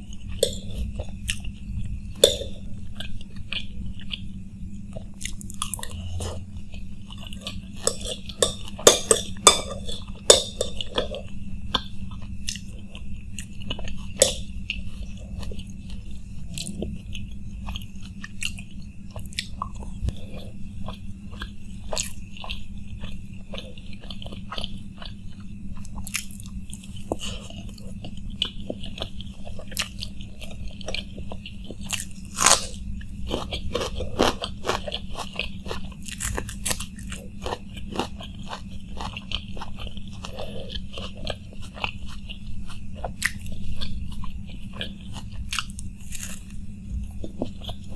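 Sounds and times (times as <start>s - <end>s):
crunching crisp shells: 0.0s - 4.2s, 5.2s - 16.8s, 28.0s - 47.9s
wet chewing: 0.0s - 4.3s, 4.9s - 47.9s.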